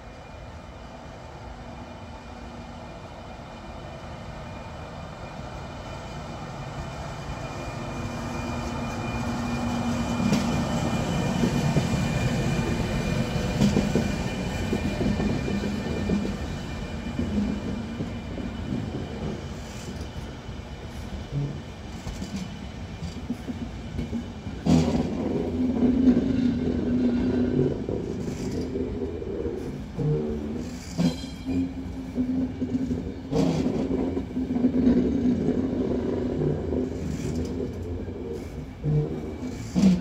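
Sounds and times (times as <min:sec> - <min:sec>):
train rumbling past: 0:00.0 - 0:40.0
train wheels knocking: 0:08.0 - 0:20.3, 0:21.3 - 0:40.0.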